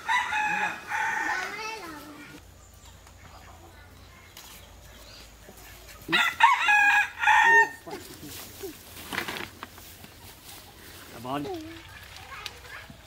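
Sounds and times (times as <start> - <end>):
rooster crowing: 0.0 - 1.7, 6.1 - 7.9.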